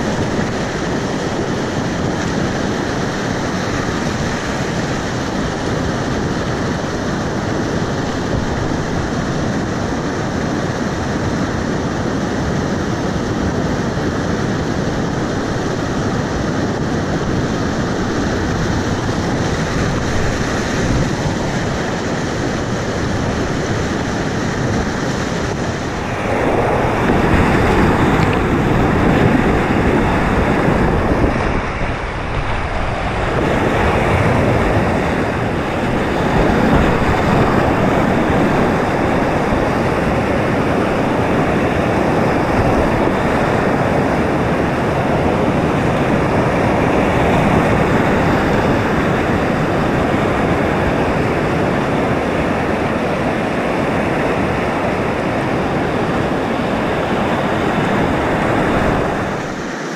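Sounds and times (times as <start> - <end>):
rushing whitewater: 0.0 - 59.9.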